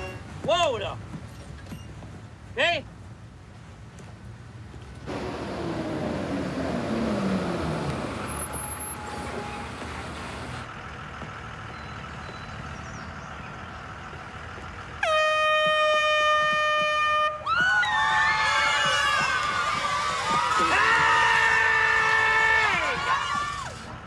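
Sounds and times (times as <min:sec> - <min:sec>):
plastic horn blast: 0:00.0 - 0:00.4, 0:15.0 - 0:17.4
bus engine rumbling: 0:00.0 - 0:03.0, 0:03.6 - 0:18.0.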